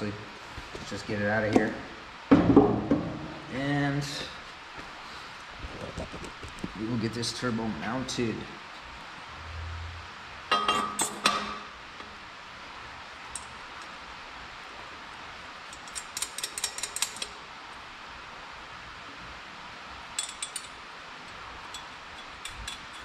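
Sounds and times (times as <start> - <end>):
metal clanks of wrench and bolts: 10.5 - 11.6, 20.2 - 20.8, 21.7 - 23.0.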